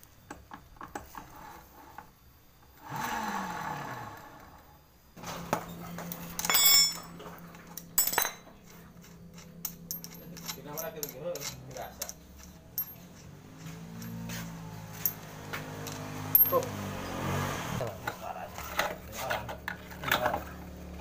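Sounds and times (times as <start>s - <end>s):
metallic clatter: 5.2s - 16.7s
small metal clinks and taps: 6.1s - 14.3s, 14.9s - 16.7s.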